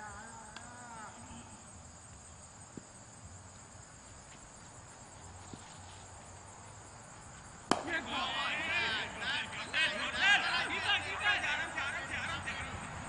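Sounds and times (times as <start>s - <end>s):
insects chorus: 0.0s - 13.0s.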